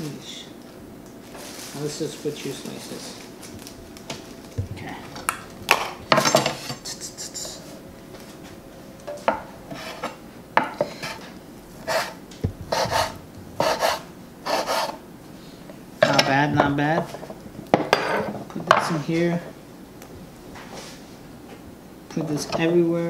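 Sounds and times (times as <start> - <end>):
plastic bag crinkling: 1.2 - 4.5
knife on wooden cutting board: 9.7 - 10.2, 10.8 - 15.0.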